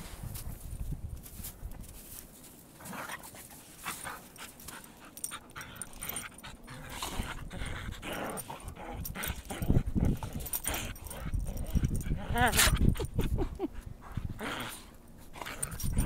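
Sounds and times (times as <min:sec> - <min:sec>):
dogs scuffling in snow: 0:00.0 - 0:05.2
dogs panting: 0:02.8 - 0:16.0
dogs growling: 0:03.9 - 0:16.0.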